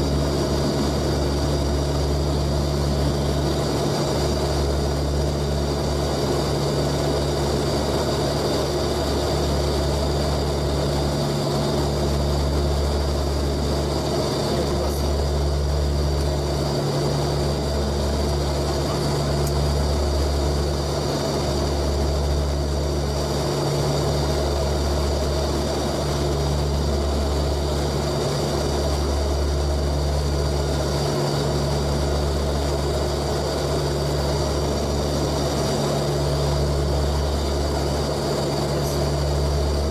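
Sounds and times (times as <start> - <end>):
deep propeller drone: 0.0 - 39.9.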